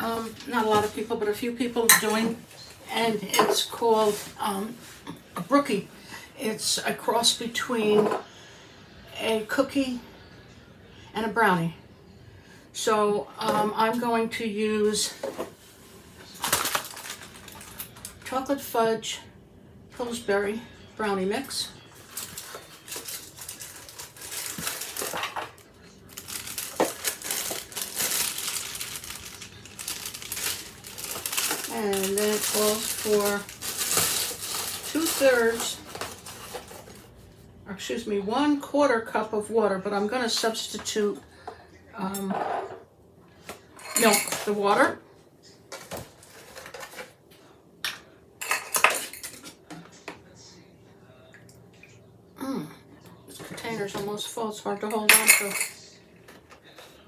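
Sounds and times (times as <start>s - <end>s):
plastic bag crinkling: 16.2s - 18.3s, 21.9s - 37.1s.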